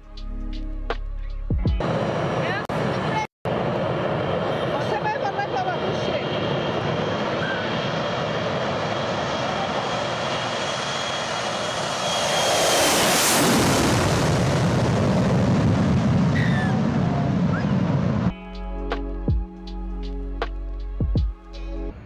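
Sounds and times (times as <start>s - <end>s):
jet airliner roar with whine: 1.8s - 18.4s.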